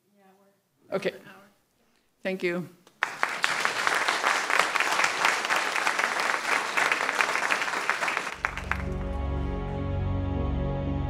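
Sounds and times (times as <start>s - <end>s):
audience applauding: 2.9s - 9.5s
soft music: 8.5s - 11.0s.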